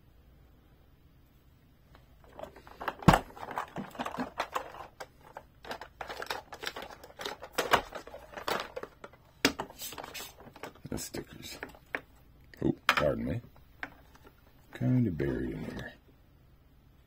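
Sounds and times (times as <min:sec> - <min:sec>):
plastic toy clicks and rubbing: 0:02.2 - 0:12.2.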